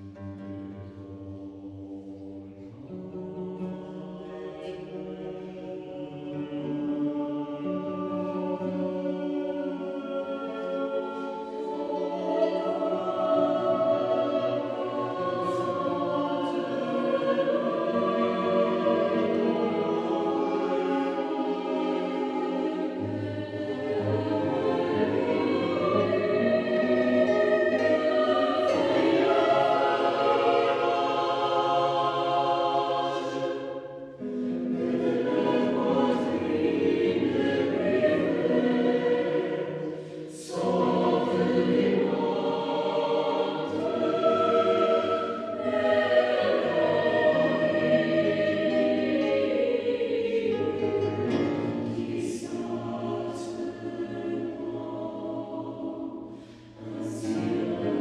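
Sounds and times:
choir singing sustained chords: 0:00.0 - 0:58.0.

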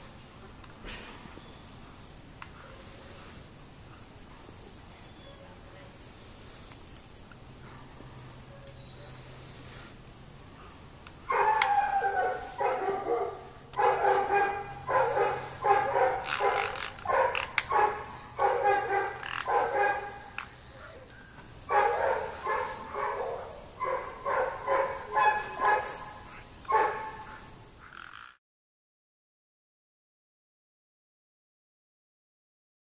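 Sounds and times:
dog barking: 0:11.3 - 0:21.1, 0:21.7 - 0:27.5.

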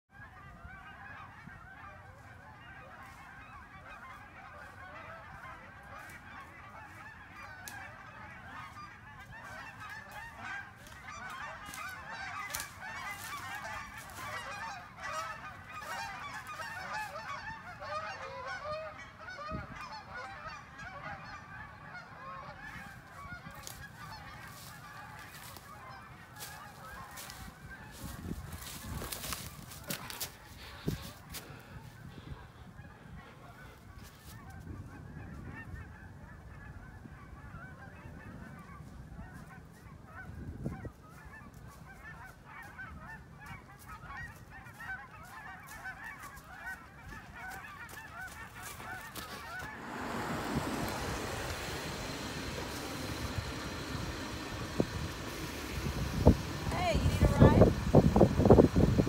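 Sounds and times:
geese honking: 0:00.1 - 0:59.0
footsteps crunching dry leaves: 0:08.9 - 0:17.2, 0:22.8 - 0:31.7, 0:44.3 - 0:58.8.

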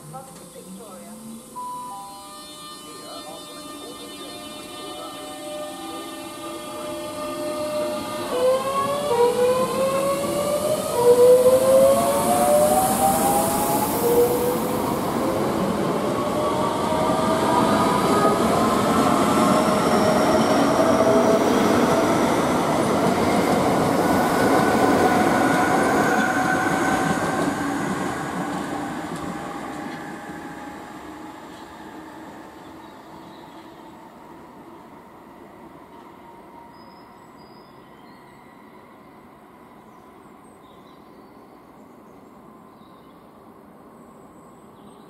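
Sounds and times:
train traction motors whining: 0:00.0 - 0:21.1.

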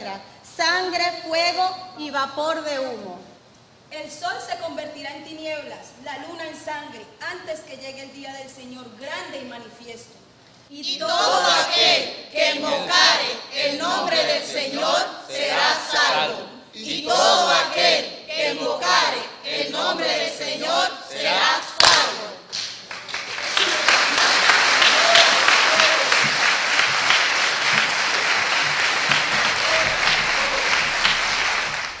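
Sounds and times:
voices reciting in unison: 0:10.7 - 0:22.5
audience applause: 0:22.9 - 0:32.0
sharp knock: 0:25.8 - 0:32.0.

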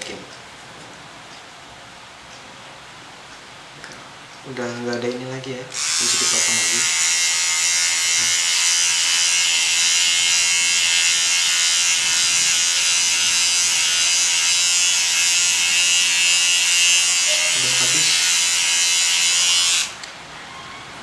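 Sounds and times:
electric shaver cutting hair: 0:05.8 - 0:20.1.

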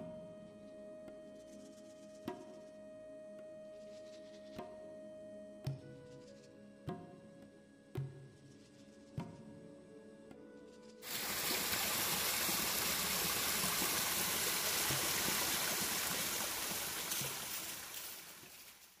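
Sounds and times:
creek water rushing: 0:11.0 - 0:18.9.

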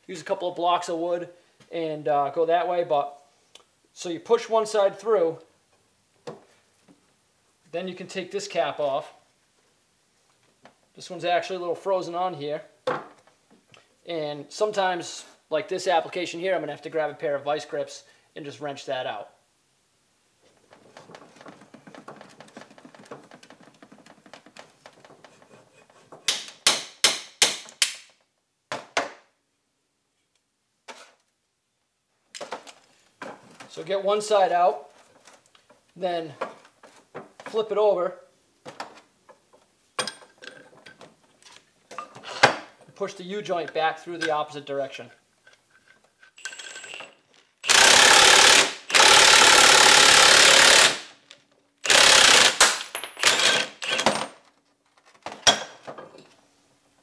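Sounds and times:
hammer striking metal: 0:26.3 - 0:28.0
impact wrench hammering: 0:26.3 - 0:28.1, 0:51.9 - 0:54.3.

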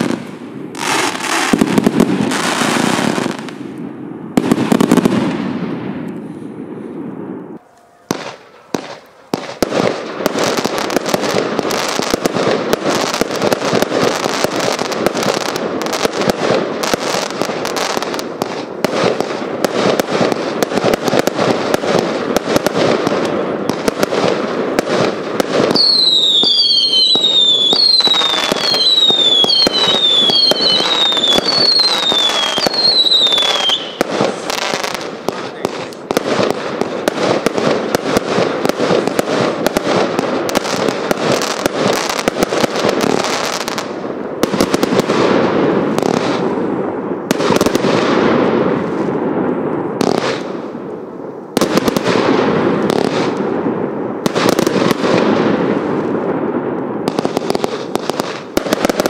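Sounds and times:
firework bangs and crackling: 0:00.0 - 0:59.0
falling firework whistles: 0:25.7 - 0:35.0.

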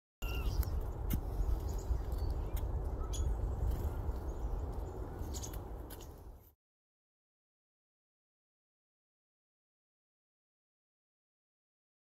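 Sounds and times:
faint bird chirps: 0:00.2 - 0:06.2.

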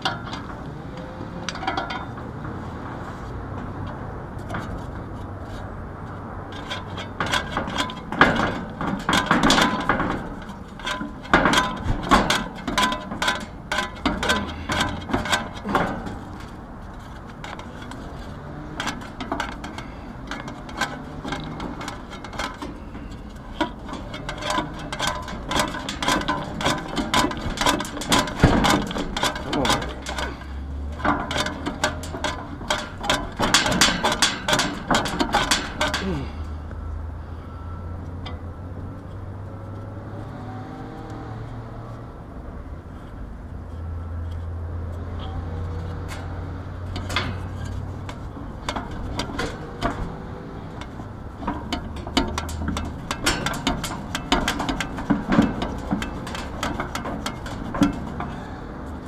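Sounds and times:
metal fan hub knocking and clicking: 0:00.0 - 0:36.9, 0:43.6 - 0:59.0.

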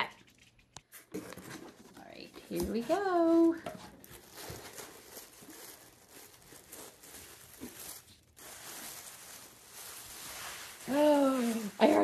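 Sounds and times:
tissue paper tearing and crinkling: 0:03.0 - 0:12.0.

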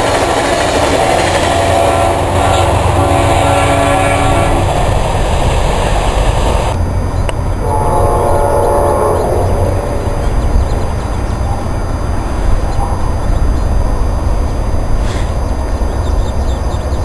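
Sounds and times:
train cars rumbling past: 0:00.0 - 0:17.0
locomotive horn blasts: 0:01.0 - 0:04.7, 0:07.6 - 0:10.6.

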